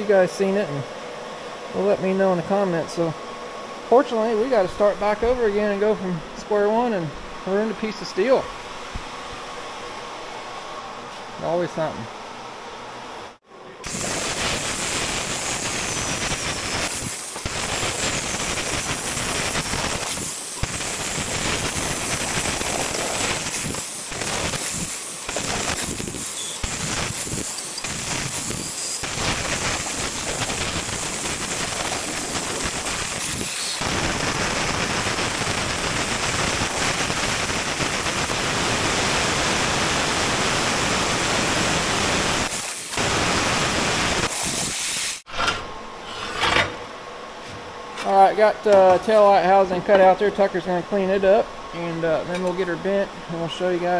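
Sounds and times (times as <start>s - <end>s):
plasma torch hissing: 13.8s - 45.3s.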